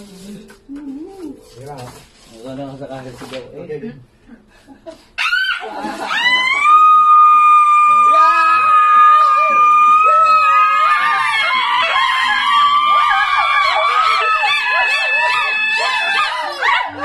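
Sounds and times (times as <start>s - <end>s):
excited voices: 5.2s - 17.0s
women and girls screaming: 5.2s - 17.0s.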